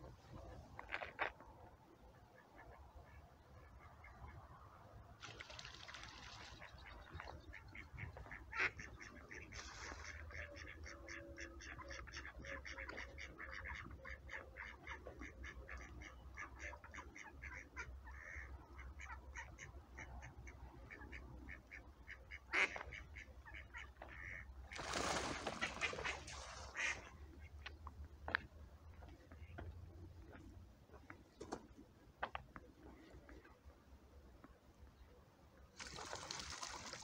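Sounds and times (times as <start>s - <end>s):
ducks quacking: 6.2s - 27.8s.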